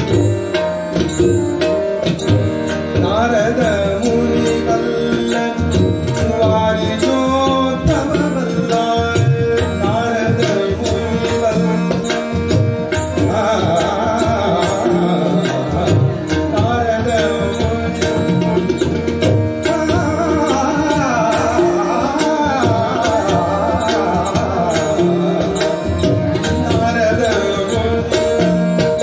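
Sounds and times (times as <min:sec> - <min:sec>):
harmonium tones: 0:00.0 - 0:29.0
tabla rhythm: 0:00.0 - 0:29.0
person singing: 0:19.6 - 0:29.0.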